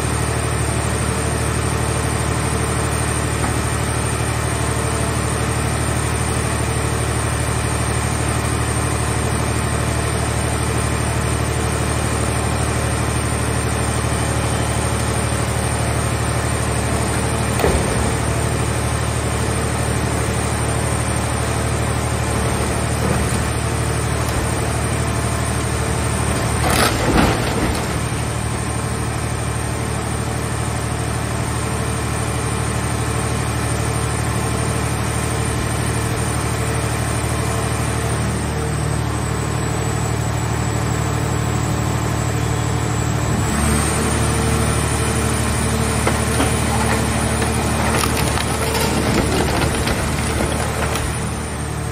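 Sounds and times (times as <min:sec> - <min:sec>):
gasoline engine running: 0:00.0 - 0:31.0, 0:41.9 - 0:51.9
metal crunching: 0:21.4 - 0:29.1, 0:45.1 - 0:51.8.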